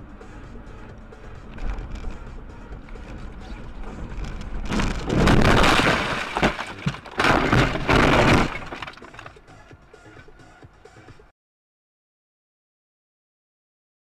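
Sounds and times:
vehicle crash impact: 3.6s - 9.4s
glass breaking: 4.7s - 9.3s.

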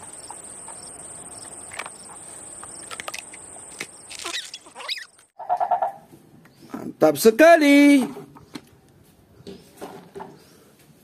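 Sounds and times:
insects droning: 0.0s - 5.3s.

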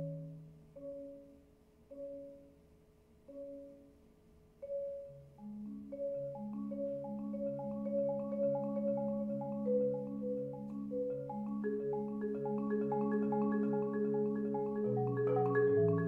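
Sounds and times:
marimba notes: 0.0s - 2.5s, 4.6s - 16.0s.

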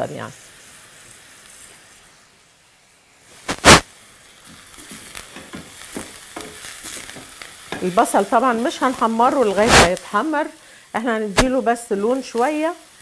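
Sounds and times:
onions sizzling in oil: 0.0s - 13.0s
wooden spoon stirring pan: 4.4s - 9.6s.

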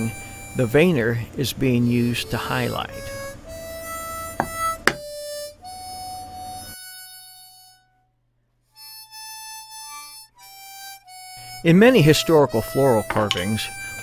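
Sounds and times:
slow harmonica music: 0.0s - 14.0s
mallet knocking on metal tool: 4.4s - 5.0s, 13.1s - 13.6s.

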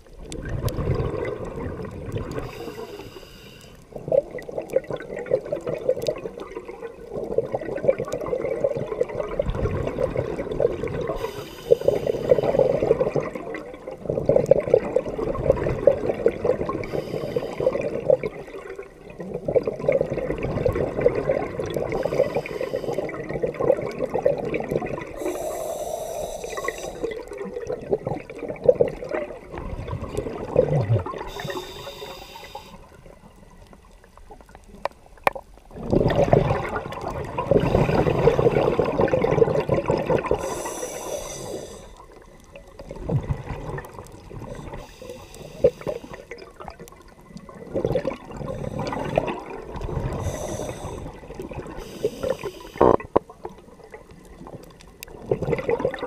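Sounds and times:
gurgling exhaust bubbles: 0.0s - 2.6s, 4.0s - 11.3s, 12.3s - 25.3s, 26.6s - 31.5s, 35.7s - 40.7s, 45.6s - 53.1s, 53.8s - 56.0s
regulator hissing inhalations: 2.4s - 3.8s, 11.2s - 12.8s, 16.8s - 17.7s, 21.9s - 23.1s, 25.2s - 27.2s, 31.3s - 32.9s, 40.4s - 42.0s, 44.6s - 46.3s, 50.2s - 51.2s, 51.8s - 53.0s.

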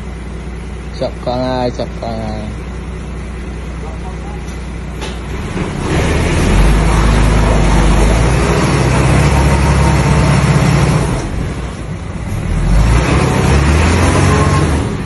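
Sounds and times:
diesel engine revving hard: 5.2s - 15.0s.

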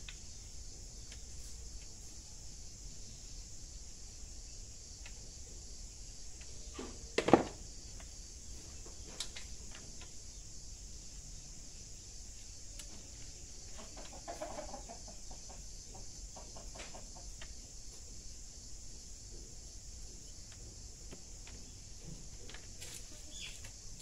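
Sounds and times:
insects droning: 0.0s - 24.0s
chicken clucking: 13.0s - 17.6s.

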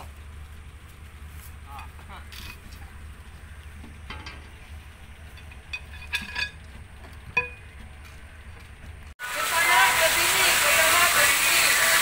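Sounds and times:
low steady hum: 0.0s - 9.1s.

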